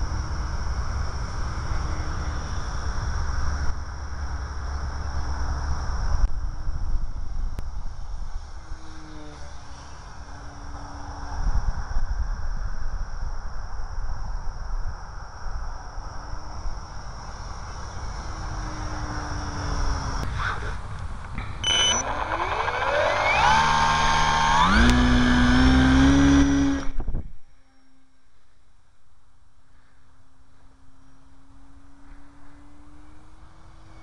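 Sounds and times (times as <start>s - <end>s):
model plane motor whining: 8.4s - 11.9s, 17.3s - 20.7s, 21.6s - 28.2s, 30.7s - 34.0s
propeller spinning up: 21.4s - 27.1s.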